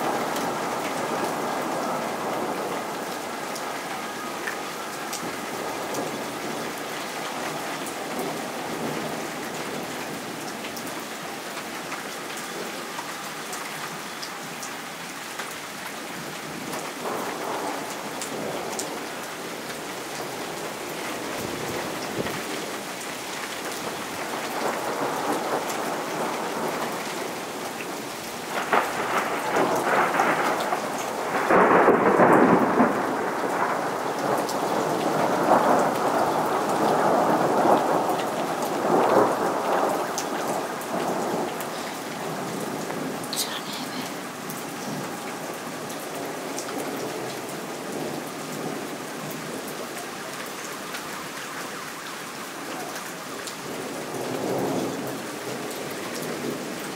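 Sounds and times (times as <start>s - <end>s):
steady rain falling: 0.0s - 56.9s
thunder rolling: 28.5s - 38.1s.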